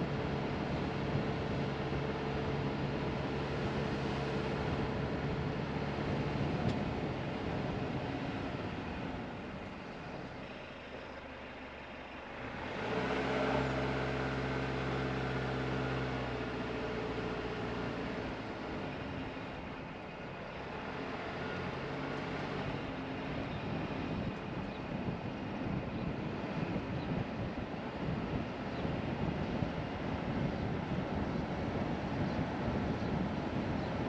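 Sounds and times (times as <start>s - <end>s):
car engine hum: 0.0s - 34.0s
tyre noise on paved road: 0.0s - 34.0s.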